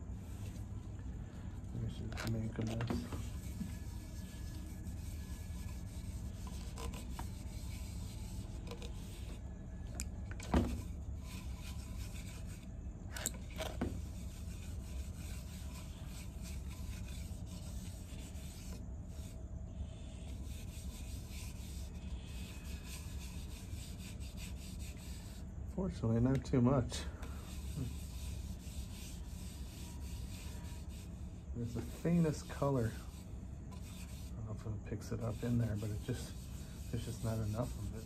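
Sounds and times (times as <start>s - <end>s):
low steady hum: 0.0s - 38.0s
cloth rubbing on wood: 1.7s - 9.5s, 10.5s - 19.4s, 27.4s - 38.0s.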